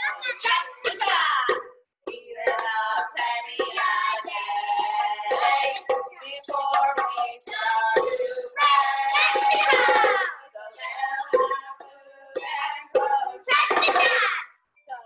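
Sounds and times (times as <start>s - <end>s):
voices singing together: 0.0s - 15.0s
tambourine jingling: 2.4s - 14.4s.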